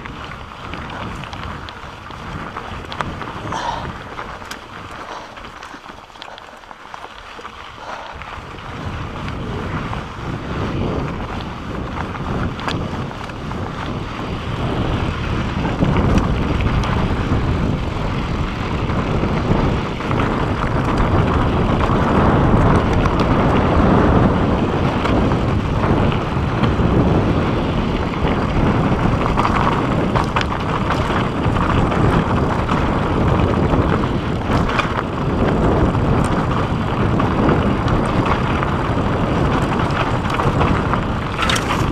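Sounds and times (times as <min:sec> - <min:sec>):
bike clicks and rattles: 0:00.0 - 0:41.9
bike tyres rumbling over rocky dirt: 0:00.0 - 0:41.9
wind rushing over microphone: 0:00.0 - 0:41.9.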